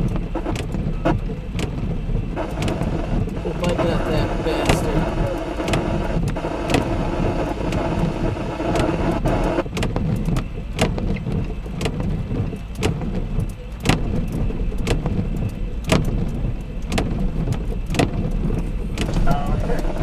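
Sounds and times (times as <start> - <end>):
low thunder rumble: 0.0 - 20.0
rain ticking: 0.0 - 20.0
sharp drip ticks: 0.0 - 20.0.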